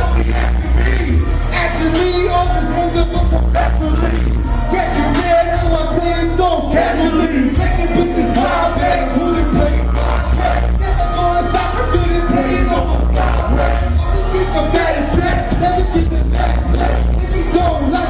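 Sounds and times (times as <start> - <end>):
loud bass-heavy beat: 0.0 - 18.0
rappers rapping into microphones: 0.0 - 18.0.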